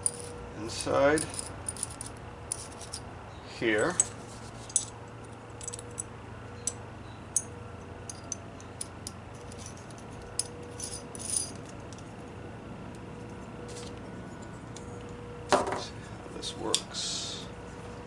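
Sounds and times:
small metal parts clinking: 0.0 - 3.1, 3.7 - 12.2.

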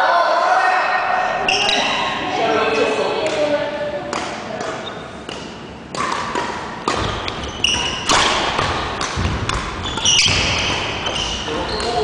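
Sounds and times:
sneaker squeaks: 1.4 - 2.2, 4.7 - 12.0
racket hitting shuttlecock: 3.2 - 12.0
footfalls on wooden court: 7.0 - 12.0.

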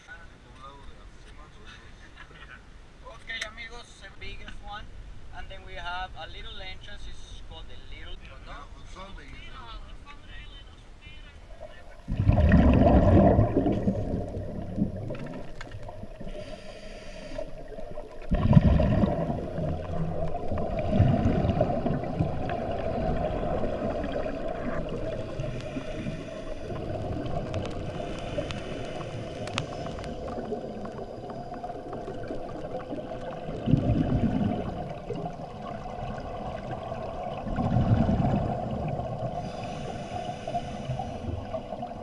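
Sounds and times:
regulator bubbles gurgling underwater: 11.5 - 42.0
muffled underwater drone: 12.0 - 42.0.

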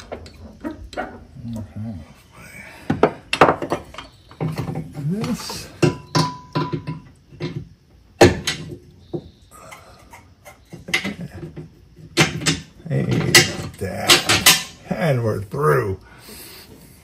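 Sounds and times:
metal knocks and clunks: 2.8 - 9.4, 10.1 - 14.8.

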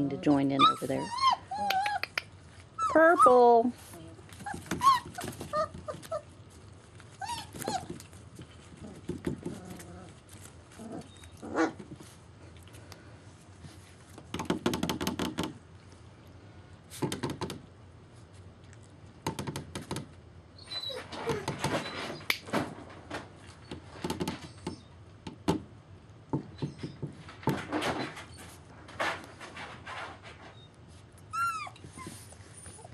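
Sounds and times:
puppies whimpering and yipping: 0.0 - 3.7, 4.3 - 8.2, 20.6 - 22.4, 30.5 - 32.9
scuffling on crumpled paper: 9.6 - 14.2.

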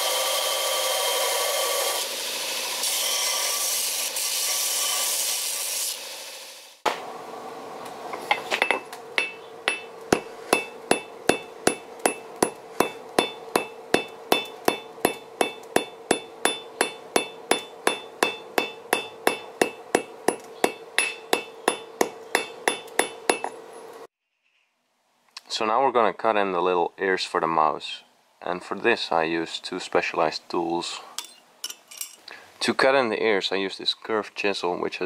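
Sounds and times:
hammer striking steel on anvil: 8.3 - 23.6
anvil ringing: 8.6 - 23.6.

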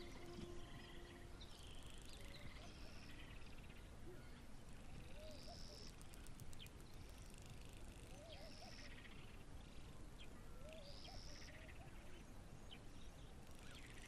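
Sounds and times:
high buzzy bird call: 0.0 - 3.5
soft low warbling calls: 0.0 - 3.6.

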